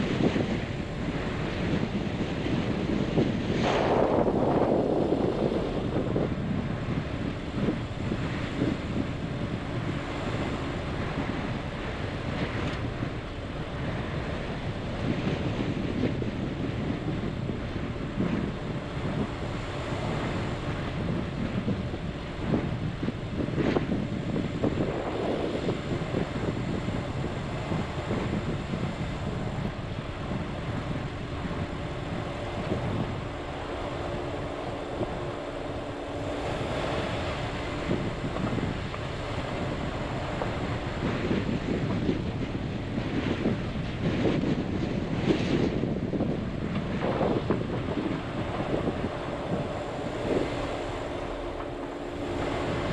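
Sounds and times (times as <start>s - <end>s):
vehicle engine and tyres rumbling: 0.0s - 52.9s
wind buffeting: 0.0s - 52.9s.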